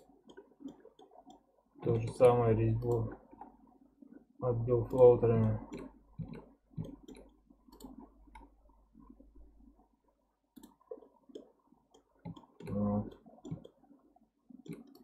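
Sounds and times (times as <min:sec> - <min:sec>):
computer mouse clicks: 0:00.0 - 0:03.5, 0:04.9 - 0:08.6, 0:10.5 - 0:13.8, 0:14.6 - 0:15.0.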